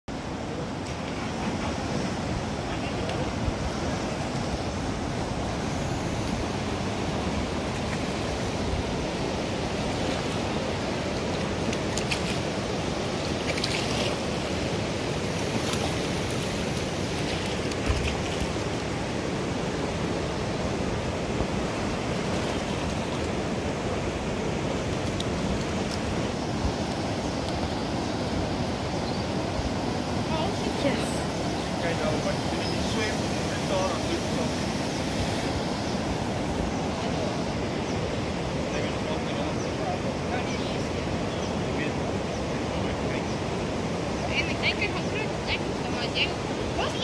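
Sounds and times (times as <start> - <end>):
fast-moving floodwater rushing: 0.1 - 47.0.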